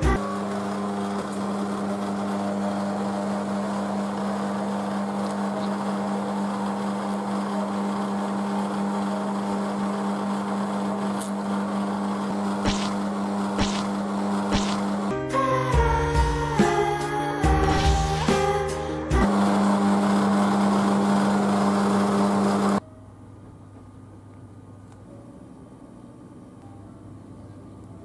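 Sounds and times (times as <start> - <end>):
ice cream machine humming: 0.0 - 16.2, 17.0 - 22.9.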